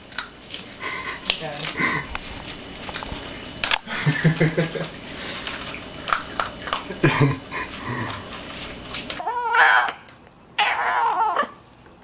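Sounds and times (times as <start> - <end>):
puppy grunt: 9.2 - 11.6.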